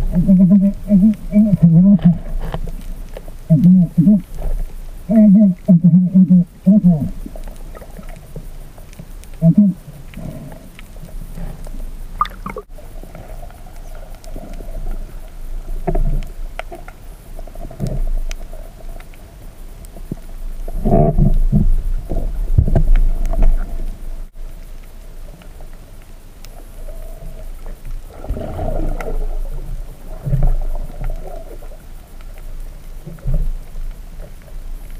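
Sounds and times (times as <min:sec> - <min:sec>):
low underwater rumble: 0:00.0 - 0:34.9
muffled gurgles and knocks: 0:20.0 - 0:24.0.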